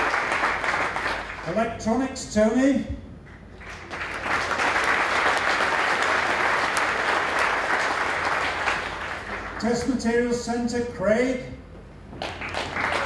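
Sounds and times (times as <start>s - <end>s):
audience applauding: 0.0s - 1.5s, 3.6s - 9.9s, 12.2s - 13.0s.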